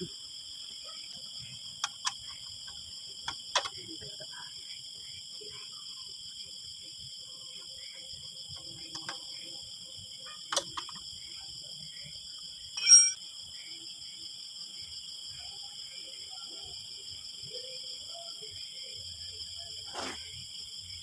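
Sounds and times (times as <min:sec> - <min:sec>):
crickets chirping: 0:00.0 - 0:21.0
steel rod clinking on metal: 0:12.8 - 0:13.2.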